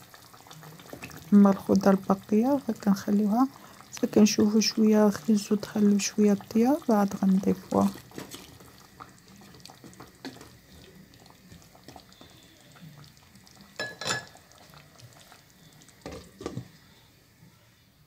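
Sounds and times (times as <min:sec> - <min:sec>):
spoon stirring stew: 0:00.1 - 0:02.4, 0:03.9 - 0:16.8
liquid sloshing: 0:07.1 - 0:16.8
glass lid clattering: 0:13.8 - 0:14.4.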